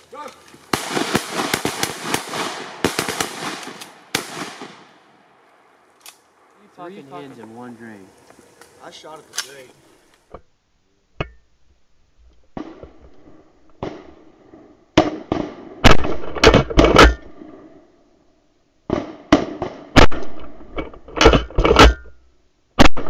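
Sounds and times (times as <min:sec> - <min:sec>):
shotgun shots with ringing tail: 0:00.8 - 0:05.2.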